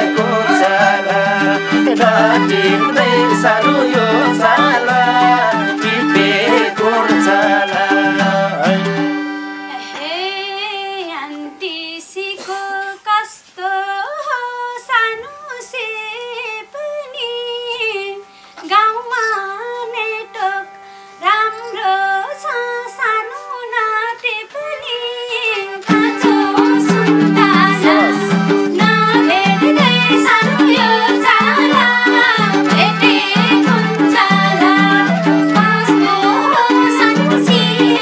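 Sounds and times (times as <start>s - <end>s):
lone ornamented melody: 0.0s - 11.6s, 17.9s - 23.7s, 25.8s - 38.0s
folk band with harmonium: 0.0s - 13.6s, 14.8s - 38.0s.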